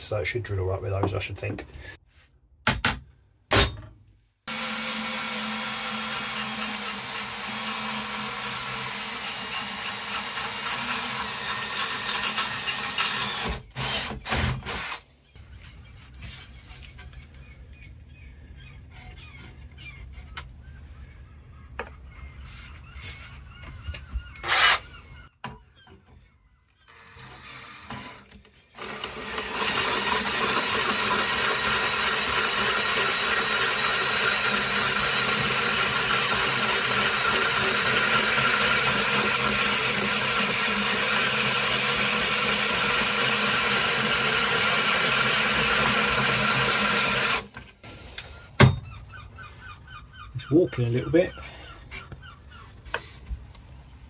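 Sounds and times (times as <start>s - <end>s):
power drill grinding steel: 4.5s - 15.1s, 24.3s - 24.9s, 26.8s - 48.4s.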